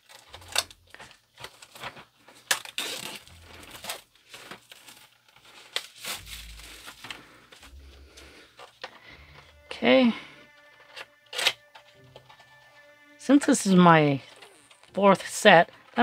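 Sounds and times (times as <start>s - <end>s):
plastic wrap crinkling: 0.0s - 8.7s.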